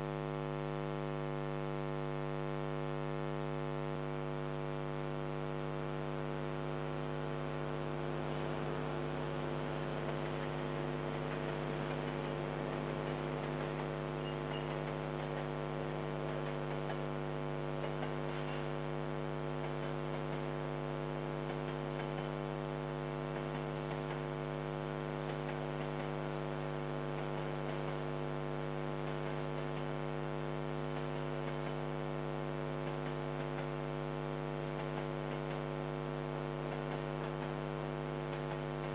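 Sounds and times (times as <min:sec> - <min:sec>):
electrical mains hum: 0:00.0 - 0:38.9.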